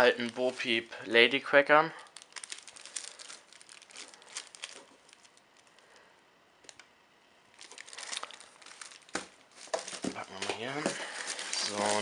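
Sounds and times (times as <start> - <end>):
paper crinkling: 0.0 - 1.2, 2.0 - 5.8, 7.6 - 12.0.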